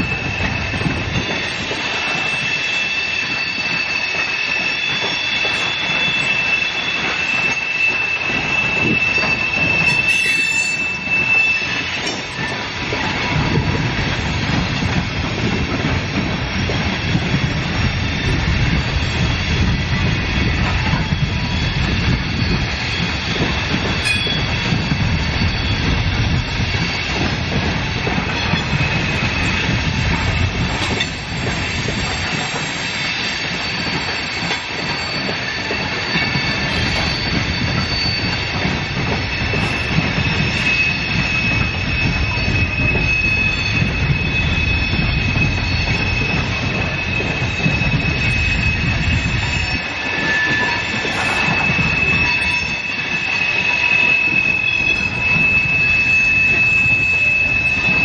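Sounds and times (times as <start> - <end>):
freight train wheels on rails: 0.0 - 58.0
high wheel squeal: 0.0 - 58.0
heavy low rumble: 12.1 - 32.8.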